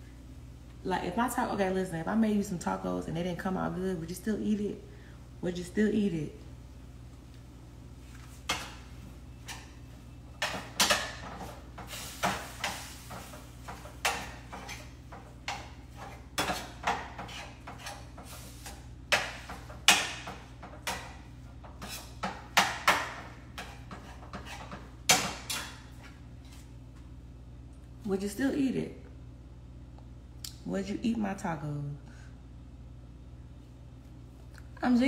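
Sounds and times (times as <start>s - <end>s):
steady low hum: 0.0s - 35.0s
utensil knocking on pans: 10.4s - 18.3s, 19.1s - 25.7s.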